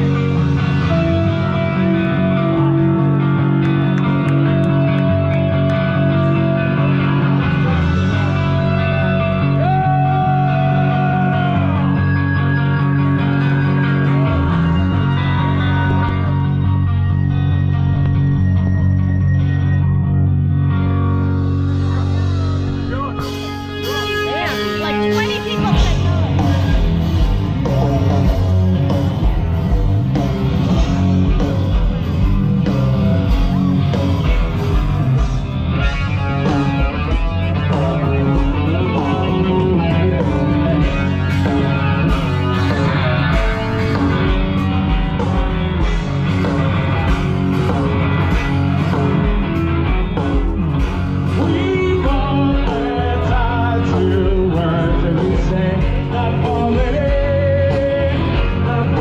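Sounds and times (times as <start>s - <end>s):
live rock band playing: 0.0s - 59.0s
person singing: 37.6s - 41.6s, 51.3s - 59.0s.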